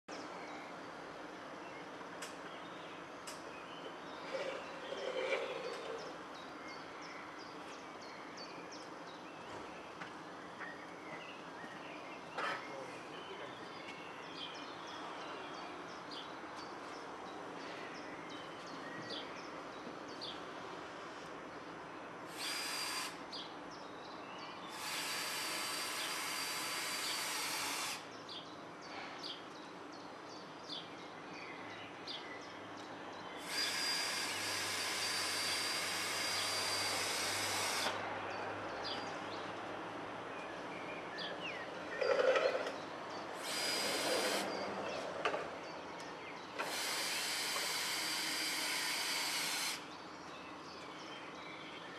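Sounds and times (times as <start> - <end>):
birds chirping: 1.7 - 51.9
power drill whining: 22.3 - 23.2, 24.7 - 28.1, 33.4 - 38.0, 43.4 - 44.6, 46.6 - 49.8.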